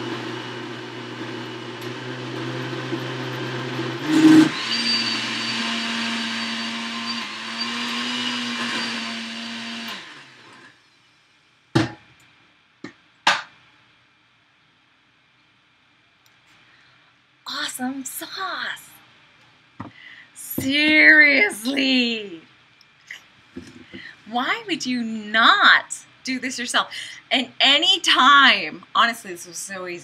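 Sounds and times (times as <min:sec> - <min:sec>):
blender motor whining: 0:00.0 - 0:10.8.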